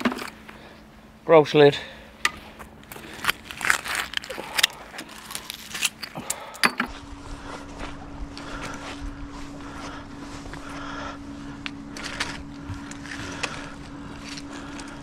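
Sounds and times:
faint steady hum: 0:00.0 - 0:15.0
low rumble: 0:06.9 - 0:15.0.

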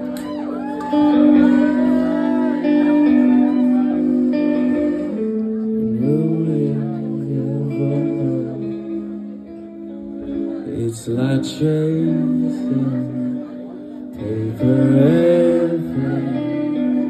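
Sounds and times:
live band playing: 0:00.0 - 0:06.5
guitar chords: 0:00.0 - 0:17.0
person singing: 0:00.0 - 0:17.0.

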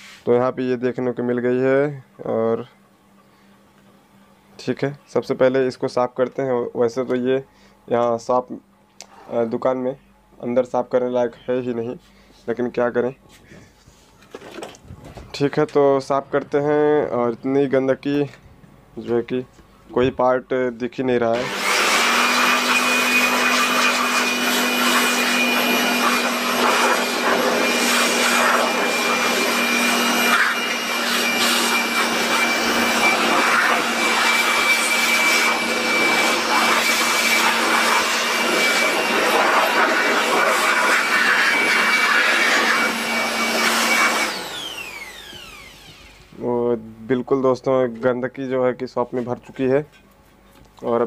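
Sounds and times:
electric air blower running: 0:21.3 - 0:46.4.

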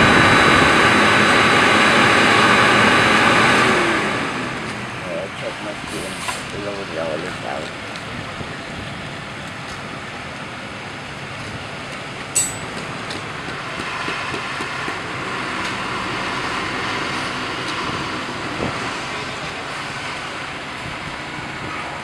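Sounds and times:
concrete mixer truck engine running: 0:00.0 - 0:22.0.

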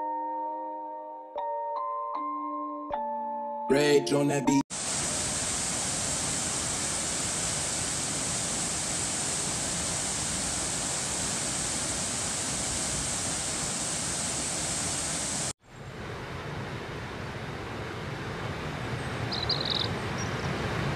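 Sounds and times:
waterfall pouring over rocks: 0:04.7 - 0:15.6.

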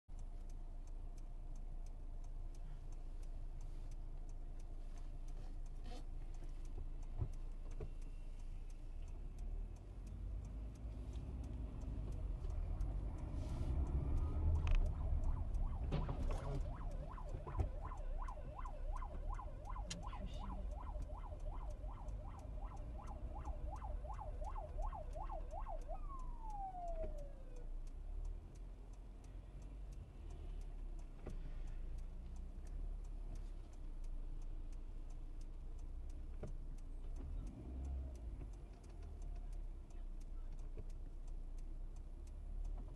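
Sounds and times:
road and engine rumble: 0:00.0 - 0:42.9
police siren warbling: 0:13.9 - 0:27.7.

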